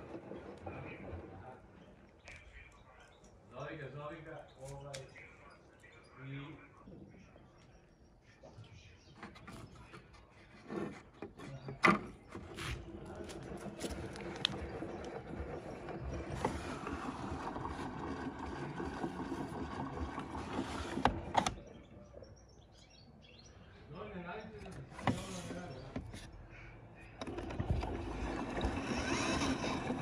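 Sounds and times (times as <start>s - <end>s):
washing machine running: 0.0s - 1.7s, 12.8s - 21.7s, 27.2s - 30.0s.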